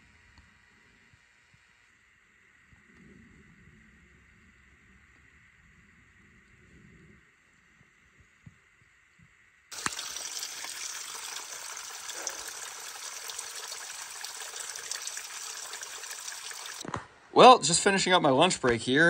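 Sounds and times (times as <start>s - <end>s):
water splashing off rock: 9.7s - 14.9s
water filling plastic bottle: 9.7s - 16.8s.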